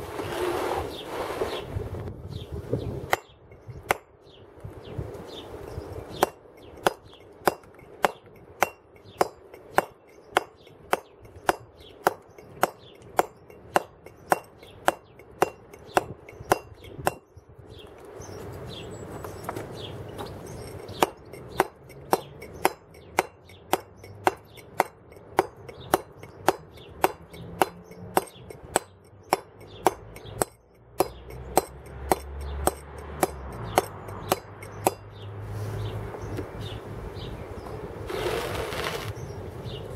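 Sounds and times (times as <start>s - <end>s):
mallet striking chisel into stone: 3.1s - 4.1s, 6.2s - 17.3s, 20.6s - 35.2s.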